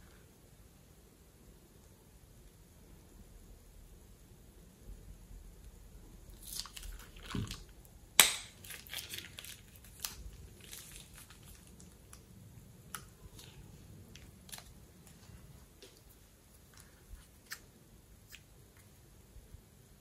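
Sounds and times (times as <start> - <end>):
plastic piping bag clicking and rustling: 6.6 - 12.3.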